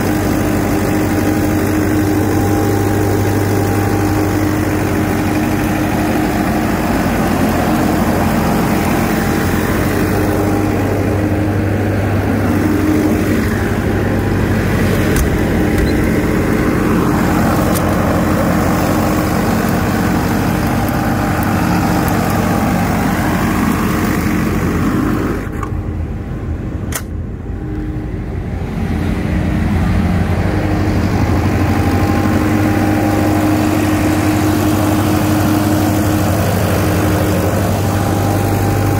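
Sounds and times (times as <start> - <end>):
diesel generator running: 0.0 - 38.9
sharp click: 26.9 - 27.2.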